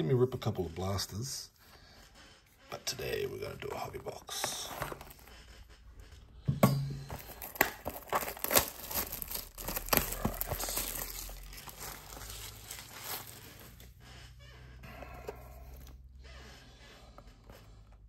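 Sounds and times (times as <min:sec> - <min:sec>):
plastic shrink wrap crinkling: 0:07.1 - 0:13.9.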